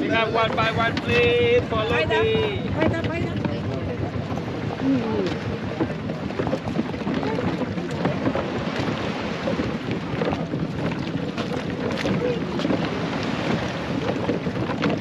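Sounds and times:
people talking: 0.0 - 6.2, 7.2 - 8.2, 12.1 - 12.7
boat engine running: 0.0 - 15.0
wind buffeting microphone: 0.0 - 15.0.

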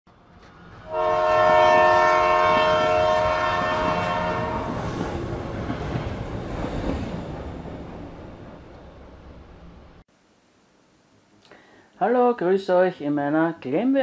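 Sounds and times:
passing train rumble: 0.1 - 10.0
train horn chord: 0.8 - 4.9.

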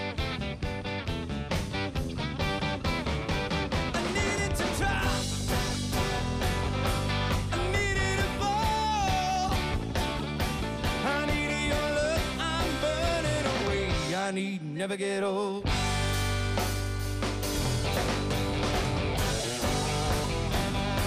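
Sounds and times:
drums steady beat: 0.0 - 14.2, 15.7 - 21.0
rock band playing live: 0.0 - 21.0
person singing: 3.9 - 5.8, 7.4 - 9.8, 10.8 - 15.8.

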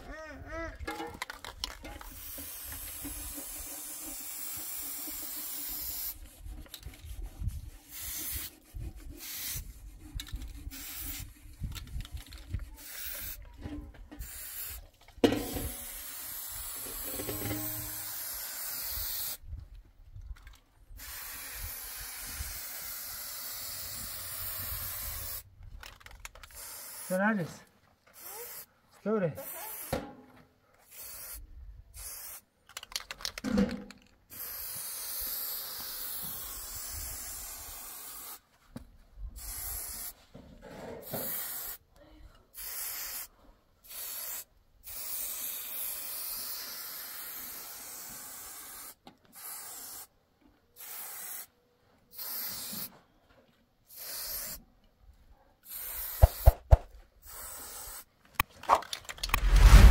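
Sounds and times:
spray paint can hissing: 1.2 - 13.4, 14.2 - 14.8, 15.4 - 19.4, 20.9 - 25.4, 26.2 - 27.2, 28.1 - 28.7, 29.4 - 30.0, 30.8 - 33.4, 34.3 - 38.4, 39.4 - 40.2, 41.0 - 41.8, 42.6 - 50.1, 50.8 - 51.5, 52.1 - 52.9, 53.9 - 54.6, 55.7 - 58.5, 59.3 - 59.9.

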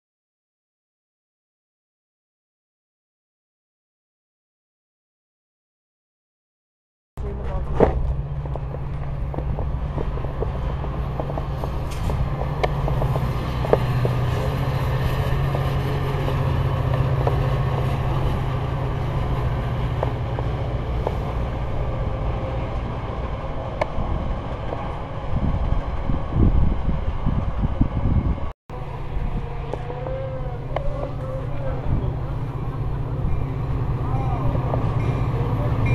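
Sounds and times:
train rolling past rumble: 7.2 - 35.9
wheels clicking and knocking: 7.5 - 14.6.

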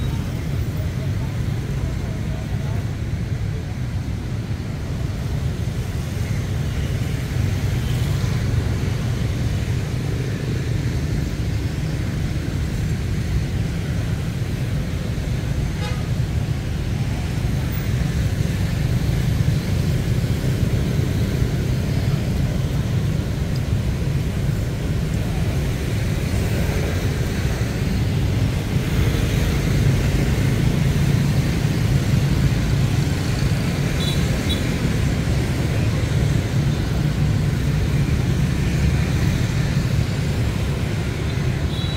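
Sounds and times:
road traffic rumble: 0.0 - 41.9.

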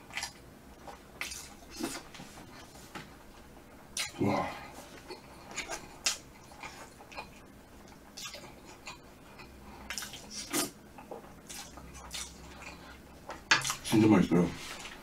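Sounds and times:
chewing: 0.0 - 2.7, 4.9 - 13.9.

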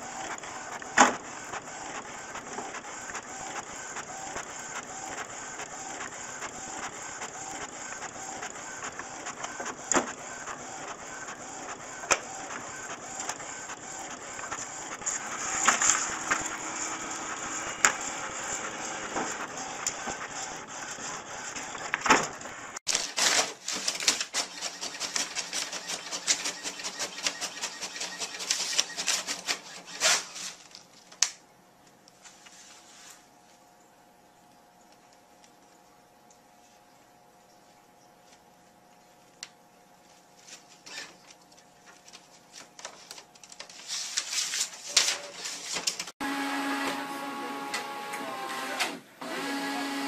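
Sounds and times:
printer whirring with clicks: 0.0 - 31.4, 44.9 - 50.0
printer feeding paper clicking: 0.2 - 20.5, 21.5 - 31.4.

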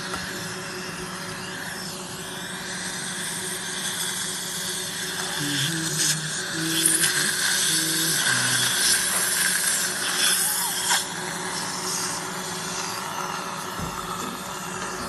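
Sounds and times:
dental suction tube hissing: 2.6 - 13.0.

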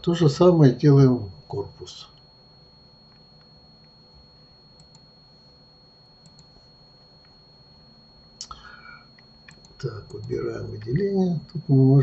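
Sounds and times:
thin high whine: 0.0 - 12.0
computer mouse clicks: 4.8 - 5.1, 6.2 - 6.6, 9.2 - 11.0.

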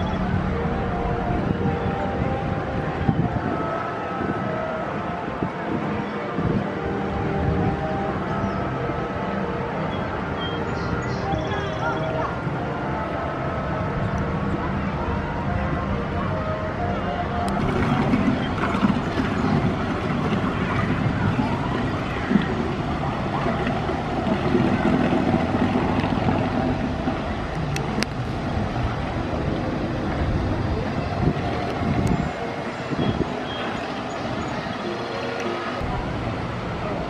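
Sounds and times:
murmur of distant voices: 0.0 - 37.0
boat motor running: 11.8 - 37.0.

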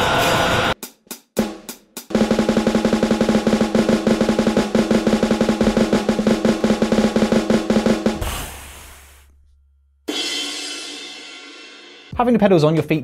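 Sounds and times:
snare drum hits and roll: 1.4 - 8.7.

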